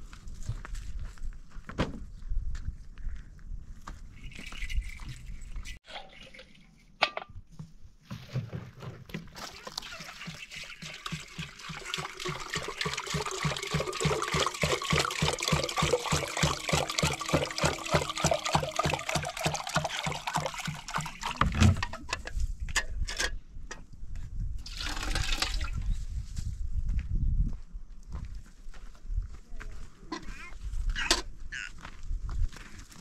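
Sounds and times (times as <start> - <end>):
water pouring with glugging: 4.2 - 7.0, 9.0 - 22.1, 24.6 - 25.9.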